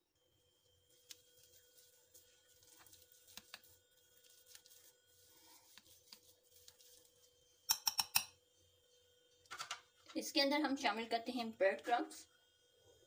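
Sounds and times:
faint steady hum: 0.0 - 13.0
potatoes being mashed in a bowl: 1.0 - 7.1.

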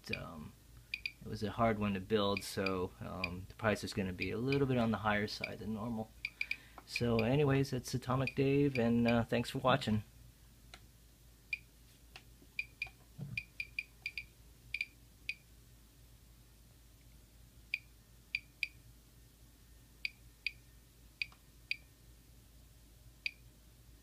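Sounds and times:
geiger counter clicks: 0.9 - 1.2.

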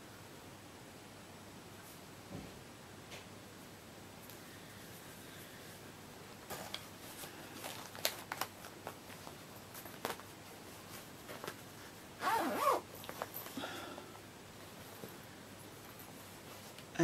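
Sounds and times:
fabric bags rustling: 6.4 - 13.6
zipper pulled open: 12.2 - 12.9.

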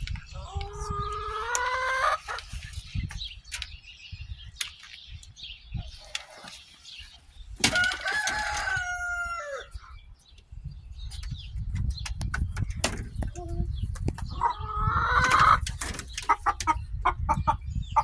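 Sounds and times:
rooster crowing: 7.7 - 9.8.

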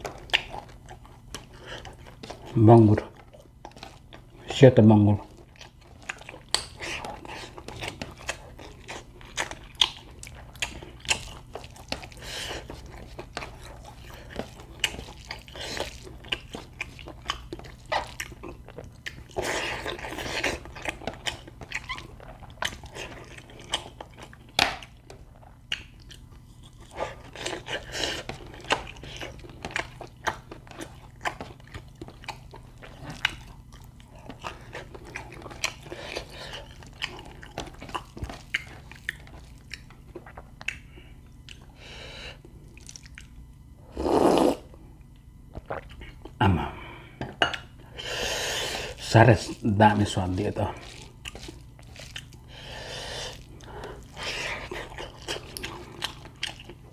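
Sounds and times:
person chewing food: 0.0 - 4.5, 5.2 - 56.9.

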